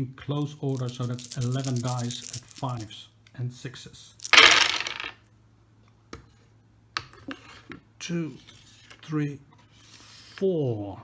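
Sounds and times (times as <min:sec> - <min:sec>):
dice clattering in wooden tray: 0:00.7 - 0:02.8, 0:04.2 - 0:05.2
light clicks of dice handled: 0:00.7 - 0:02.8.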